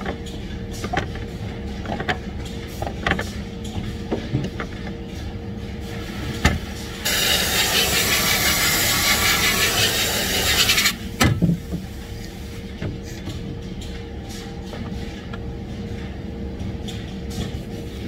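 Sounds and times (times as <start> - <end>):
spray gun hissing: 7.0 - 11.0.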